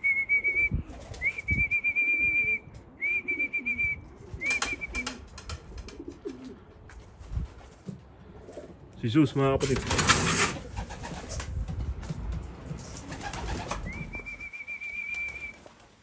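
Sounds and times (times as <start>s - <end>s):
warbling whistles: 0.0s - 5.2s, 13.6s - 15.6s
pigeons cooing: 2.0s - 6.9s, 8.1s - 8.9s.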